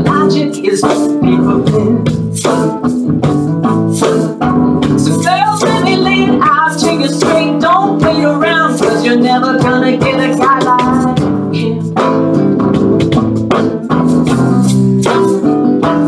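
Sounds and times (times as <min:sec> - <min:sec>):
woman singing: 0:00.0 - 0:02.3, 0:05.0 - 0:12.4
acoustic guitar: 0:00.0 - 0:16.0
cajon hits: 0:00.0 - 0:16.0.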